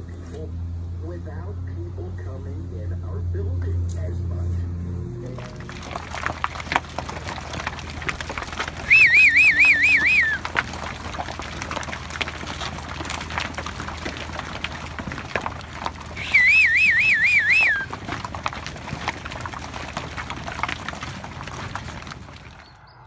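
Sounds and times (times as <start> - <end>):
faint knocks and shuffling: 5.2 - 22.7
warbling whistle: 8.8 - 10.4, 16.2 - 17.9.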